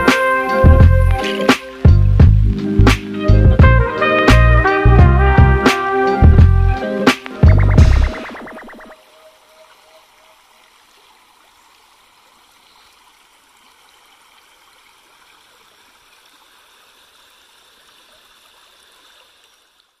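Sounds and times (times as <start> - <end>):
creek water rippling over rock: 7.0 - 20.0.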